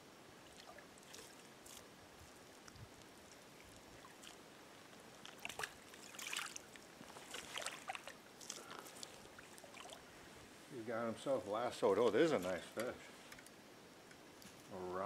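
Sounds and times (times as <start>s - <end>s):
stream running: 0.0s - 12.6s
splashing in shallow water: 0.4s - 10.1s.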